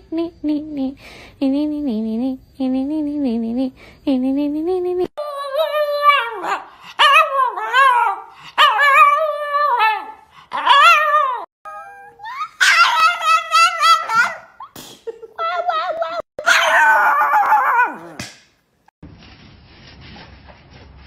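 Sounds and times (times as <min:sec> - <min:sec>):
dog howling: 0:05.2 - 0:14.6, 0:15.6 - 0:18.2.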